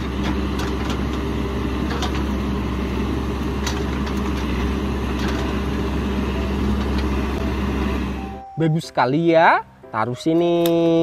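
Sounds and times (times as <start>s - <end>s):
diesel engine running: 0.0s - 8.6s.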